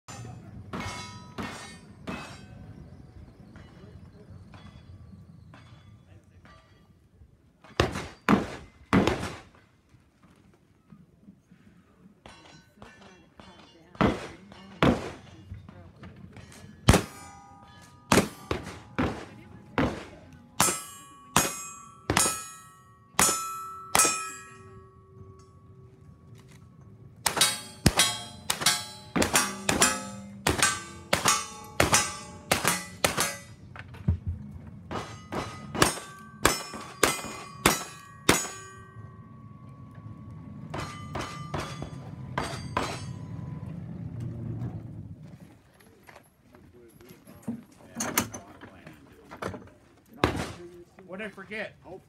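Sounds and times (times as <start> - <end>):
steel targets ringing: 0.1 - 8.4, 16.3 - 34.1, 34.8 - 43.7
low rumble: 24.6 - 45.7.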